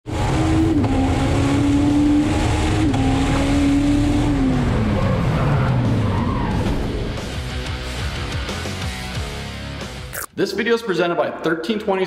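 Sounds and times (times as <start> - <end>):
car engine at high revs: 0.0 - 6.5.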